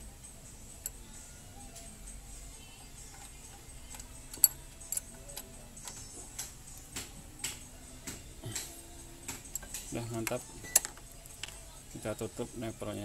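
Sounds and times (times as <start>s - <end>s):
spanner clicking on metal: 2.8s - 6.9s, 9.3s - 11.6s.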